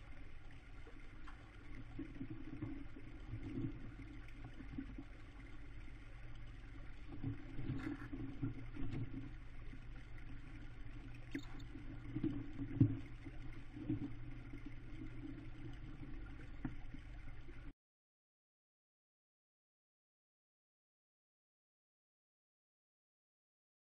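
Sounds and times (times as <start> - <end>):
low microphone hum: 0.0 - 17.7.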